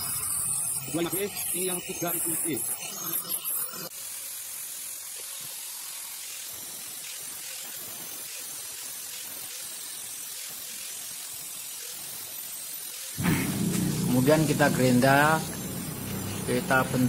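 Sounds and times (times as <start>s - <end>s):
angle grinder grinding steel: 0.0s - 3.9s, 13.2s - 17.0s.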